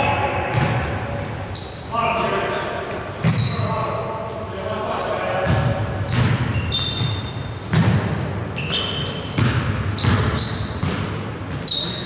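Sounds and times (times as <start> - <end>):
sneakers squeaking on court: 0.0 - 12.0
basketball bouncing on wood floor: 0.4 - 0.9, 3.2 - 3.6, 5.4 - 11.7.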